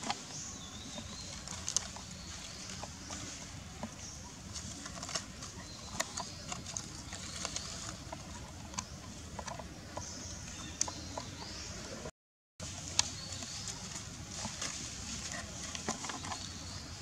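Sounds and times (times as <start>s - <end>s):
dry leaves rustling: 0.0s - 9.3s, 12.6s - 17.0s.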